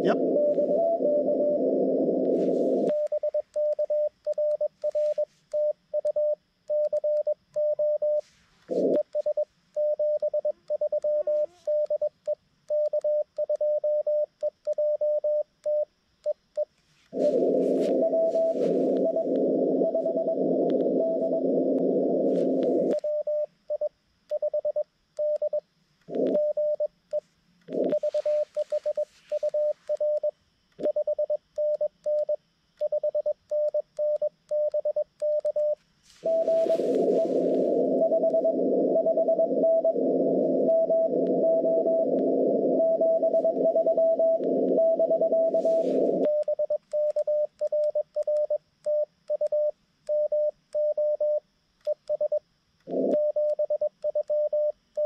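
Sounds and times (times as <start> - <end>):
radio band hiss: 0.0 - 0.8, 1.4 - 2.9, 17.1 - 23.0, 36.1 - 42.8, 45.4 - 46.3
morse code over radio: 0.0 - 5.3, 17.1 - 23.3, 27.7 - 30.2, 35.3 - 47.5
morse sidetone beeping: 17.2 - 23.5, 34.6 - 48.5.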